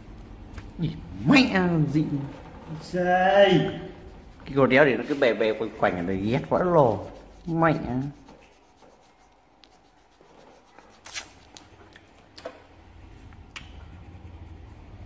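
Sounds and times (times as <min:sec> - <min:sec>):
pencil scratching on paper: 0:01.4 - 0:11.8, 0:13.8 - 0:15.0.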